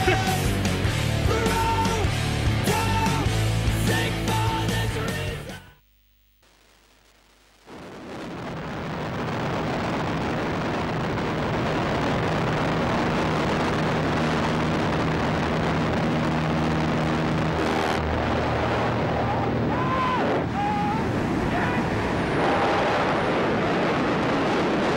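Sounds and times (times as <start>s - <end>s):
wind rushing: 8.2s - 24.9s.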